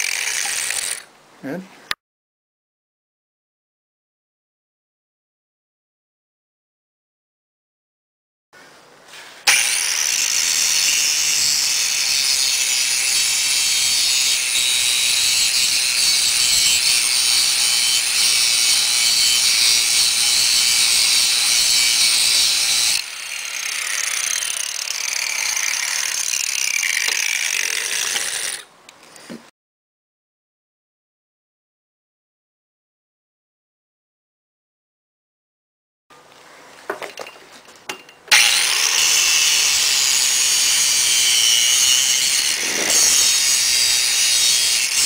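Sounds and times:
angle grinder grinding metal: 0.0s - 1.1s, 9.4s - 28.7s, 38.3s - 45.0s.

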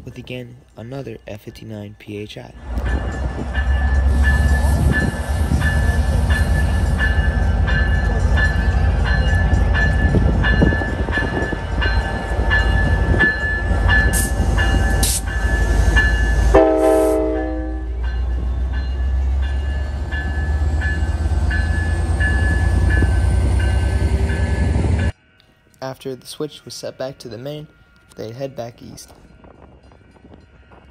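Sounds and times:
train passing with rumble: 2.5s - 25.4s
warning bell ringing: 2.9s - 25.1s
train horn blast: 16.5s - 18.0s.

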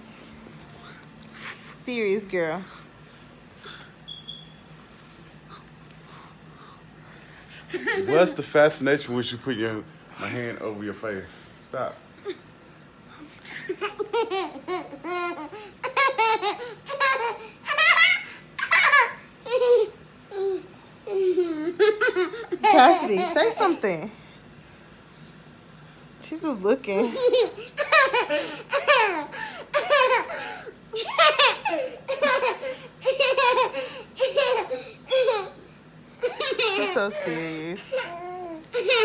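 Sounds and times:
toddler laughing: 13.7s - 23.8s, 27.0s - 35.6s, 36.2s - 39.0s.

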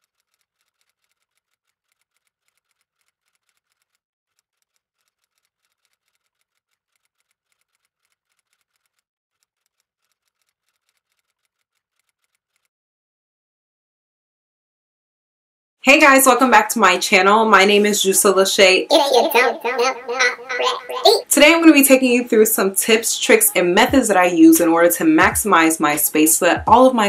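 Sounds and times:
keys typing: 0.0s - 12.6s.

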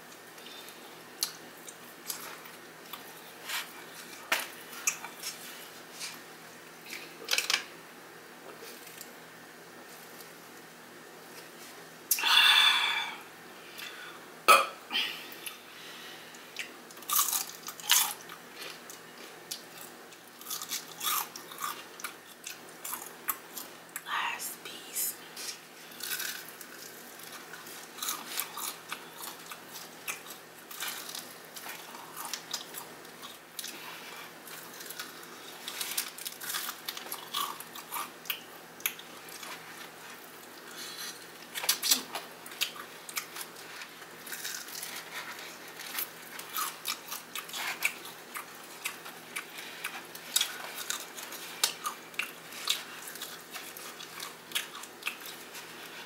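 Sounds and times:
soft chewing: 0.1s - 6.2s, 16.3s - 24.1s, 25.3s - 56.0s
crunching fried chicken: 16.6s - 23.7s, 25.9s - 56.0s.

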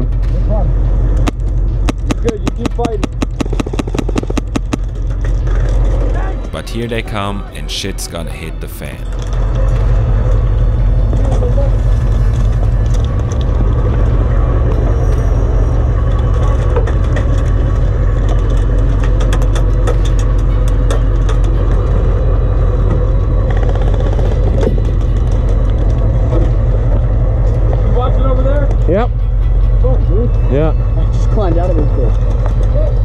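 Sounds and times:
diesel engine rumbling: 4.9s - 33.0s.

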